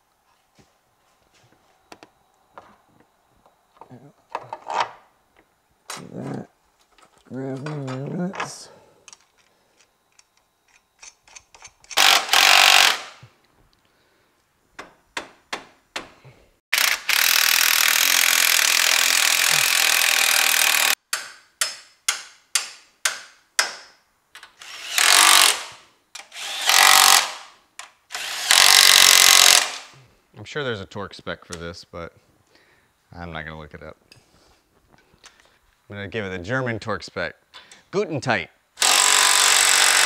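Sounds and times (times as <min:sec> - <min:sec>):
impact wrench hammering: 0:16.8 - 0:24.0.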